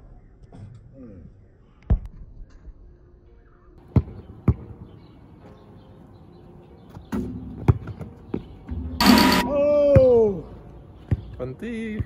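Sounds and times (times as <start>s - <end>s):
basketball bouncing on court: 3.8s - 4.7s.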